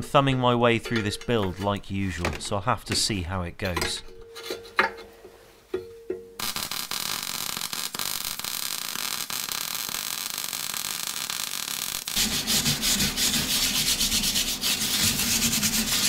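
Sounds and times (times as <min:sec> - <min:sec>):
arc welding crackling sizzle: 0:06.4 - 0:13.0
wire brush scrubbing metal: 0:12.1 - 0:16.0.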